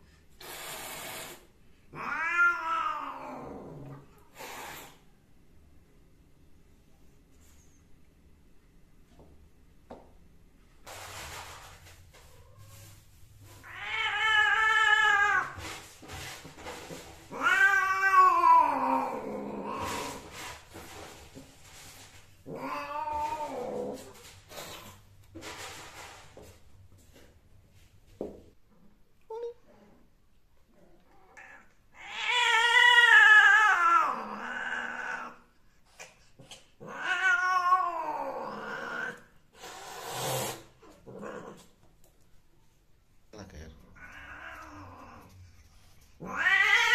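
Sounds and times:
cat caterwauling: 1.9 - 4.0, 13.6 - 15.6, 17.3 - 20.3, 22.4 - 24.2, 31.2 - 35.5, 36.8 - 39.3, 44.0 - 45.3, 46.2 - 46.9
cat yowling: 17.3 - 20.2, 46.2 - 46.9.

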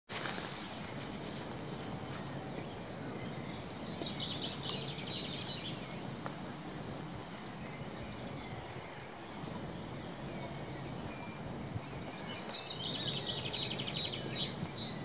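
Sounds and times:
open-air background rush: 0.1 - 15.0
bird chirping trill: 2.0 - 15.0.

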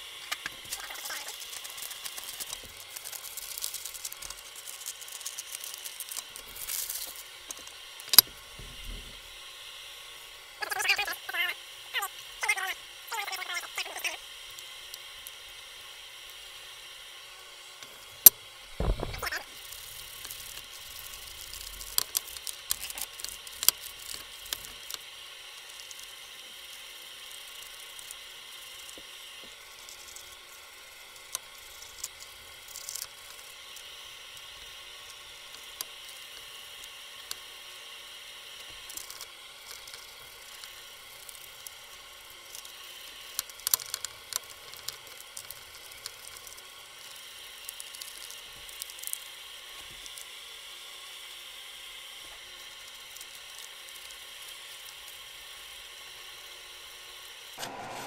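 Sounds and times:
small clicks: 17.8 - 25.0, 42.5 - 50.3
low thump: 18.8 - 19.2.

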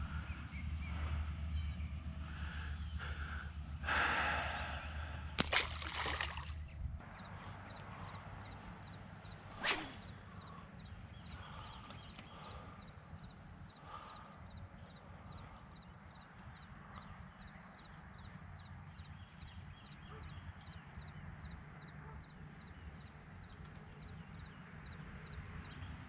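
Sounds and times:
quick falling swish: 9.6 - 10.2.

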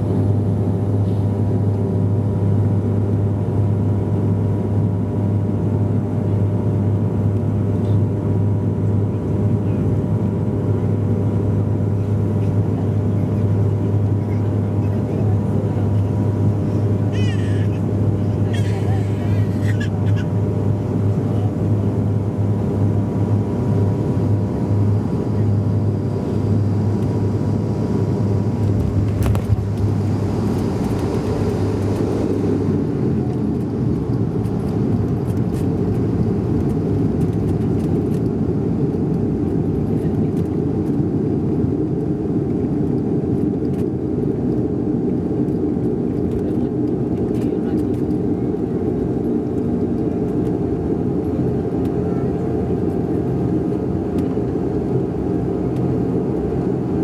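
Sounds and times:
aircraft rolling rumble: 0.0 - 57.0
propeller drone: 0.0 - 57.0.

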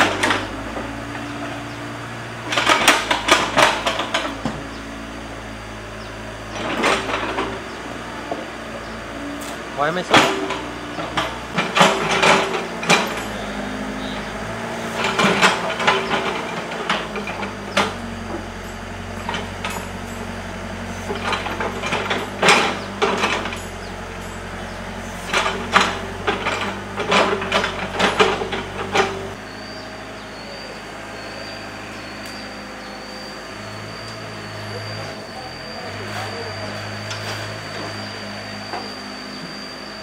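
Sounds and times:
diesel engine running: 0.0 - 40.0
thin steady high tone: 29.4 - 40.0.

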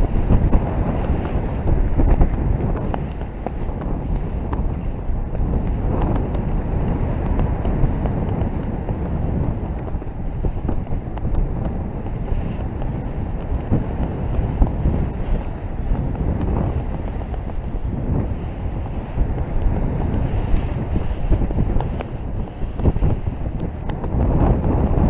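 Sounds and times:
wind rushing over microphone: 0.0 - 25.0.

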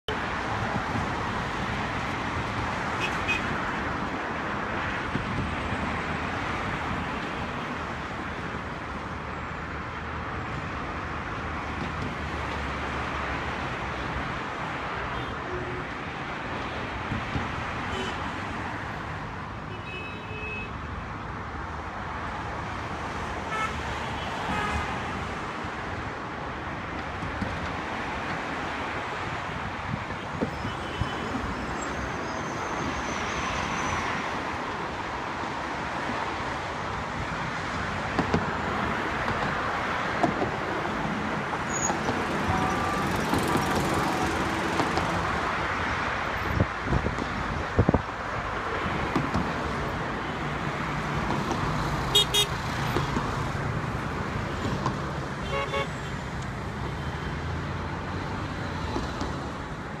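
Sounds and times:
road traffic: 0.0 - 60.0
car horn toots: 52.1 - 52.5, 55.4 - 55.9.

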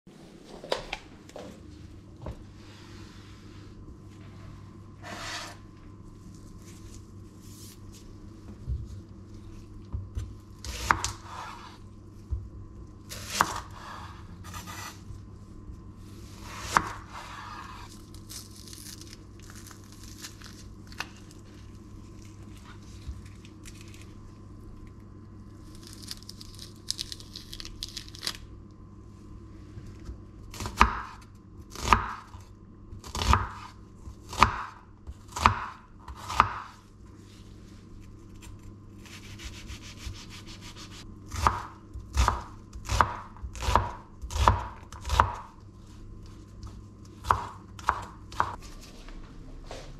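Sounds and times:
knife chopping onion: 9.9 - 11.8, 13.1 - 15.1, 16.4 - 17.9, 30.5 - 32.4, 33.0 - 36.8, 39.0 - 45.6, 46.7 - 48.6
onion skin crackling: 17.9 - 24.9, 25.6 - 28.5.

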